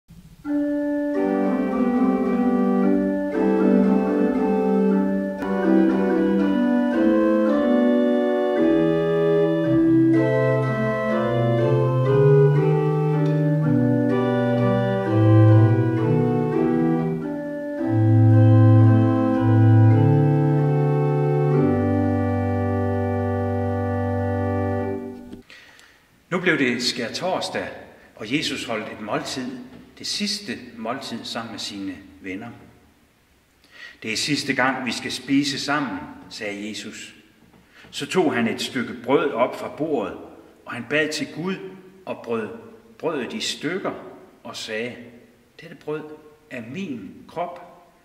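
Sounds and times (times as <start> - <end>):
church organ chords: 0.3 - 25.4.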